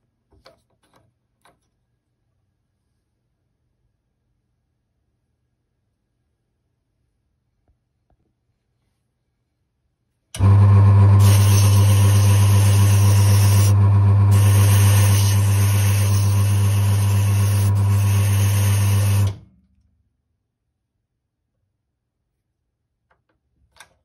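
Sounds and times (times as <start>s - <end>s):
electric motor humming: 10.4s - 19.4s.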